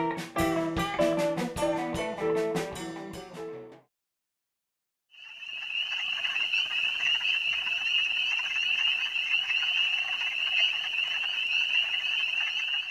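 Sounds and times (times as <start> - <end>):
chorus of small animals trilling: 5.2 - 12.9.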